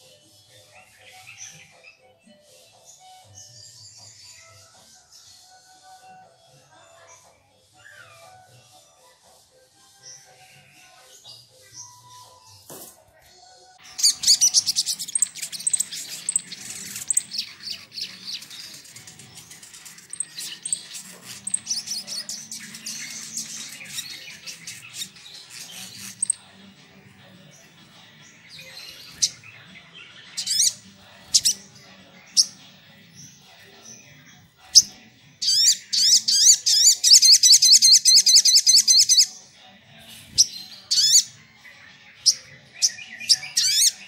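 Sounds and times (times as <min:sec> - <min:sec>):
bird singing chirping trills: 0:00.0 - 0:09.0, 0:13.7 - 0:39.4, 0:40.0 - 0:44.0
sharp bird calls: 0:13.8 - 0:26.4.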